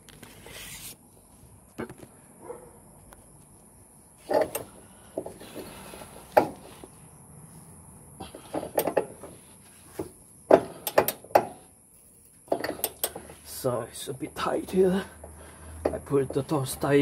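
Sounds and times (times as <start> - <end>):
wrench clanking on metal: 12.5 - 13.3.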